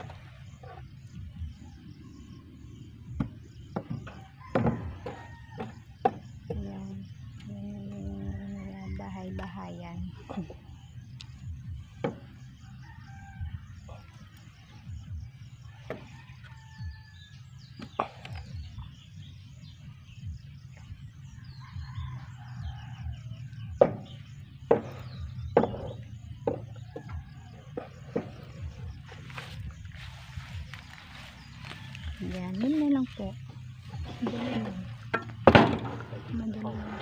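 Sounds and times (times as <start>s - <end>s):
small birds chirping: 5.1s - 35.4s
rooster crowing: 31.1s - 32.3s.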